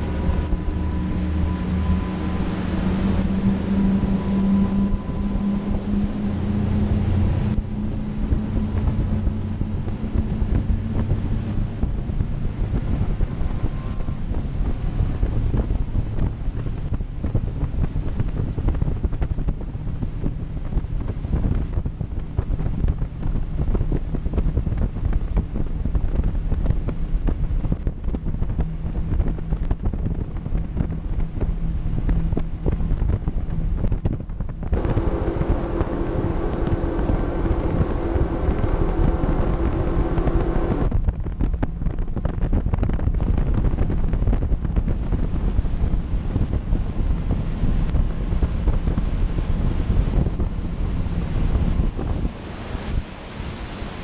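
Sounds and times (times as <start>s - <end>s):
high-pitched engine whine: 0.0s - 20.5s, 34.7s - 42.0s
low engine drone: 0.0s - 54.0s
wind buffeting microphone: 0.0s - 54.0s.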